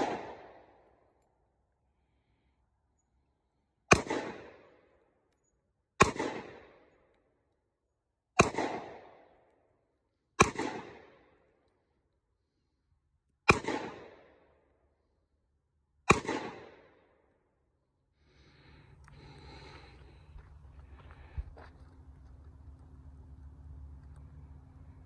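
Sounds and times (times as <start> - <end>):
handgun shots with echo: 0.0 - 0.7, 3.9 - 4.7, 6.0 - 6.8, 8.4 - 9.2, 10.4 - 11.2, 13.5 - 14.3, 16.1 - 17.0.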